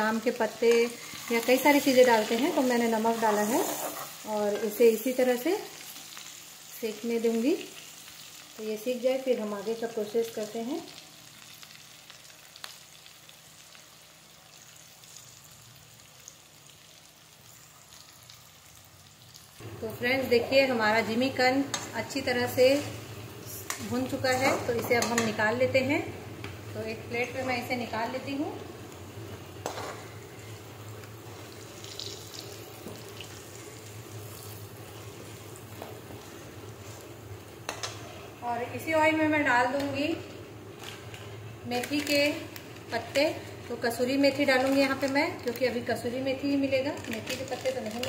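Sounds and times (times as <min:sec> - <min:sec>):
oil sizzling: 0:00.0 - 0:48.0
small pops of frying oil: 0:11.5 - 0:13.8, 0:29.6 - 0:30.1, 0:31.8 - 0:34.6, 0:37.6 - 0:38.1.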